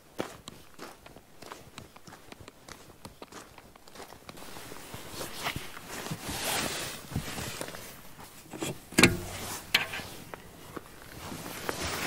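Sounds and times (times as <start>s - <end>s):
rustling and handling: 4.4s - 12.0s.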